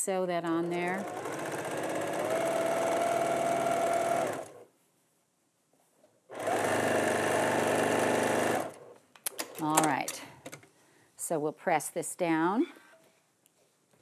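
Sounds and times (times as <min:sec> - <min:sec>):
sewing machine stitching: 0:00.6 - 0:04.6, 0:06.3 - 0:10.1.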